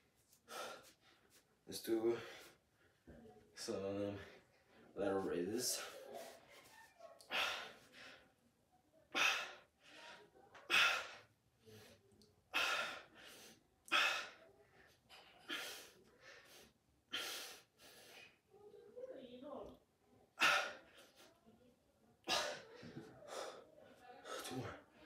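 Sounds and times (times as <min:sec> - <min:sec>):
man breathing hard: 0:00.4 - 0:01.4, 0:09.2 - 0:14.4, 0:15.4 - 0:18.4, 0:22.3 - 0:23.7.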